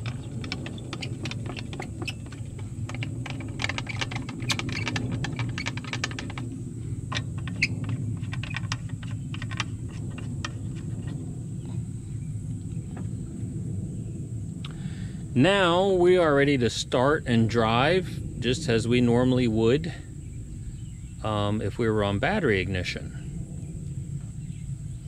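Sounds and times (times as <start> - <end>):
small clicks and light rattles: 0.0 - 11.8
steady low rumble: 0.0 - 25.0.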